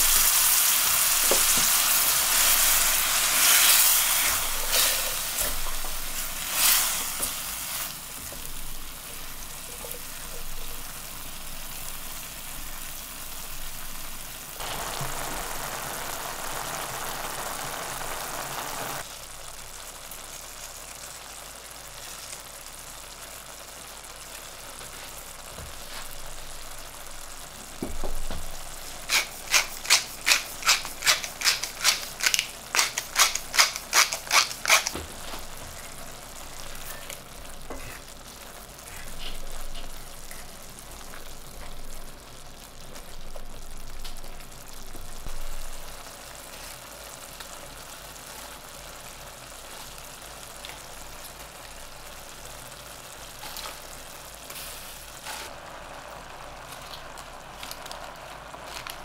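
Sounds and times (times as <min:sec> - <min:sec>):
curry simmering and sizzling: 0:00.0 - 0:59.0
spatula stirring in pan: 0:00.2 - 0:11.0, 0:28.8 - 0:41.7
salt grinder clicking: 0:29.1 - 0:35.0.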